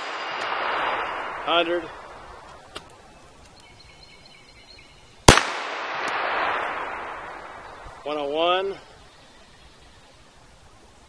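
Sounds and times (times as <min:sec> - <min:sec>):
pistol shot with echo: 0:00.0 - 0:02.8, 0:05.3 - 0:08.1.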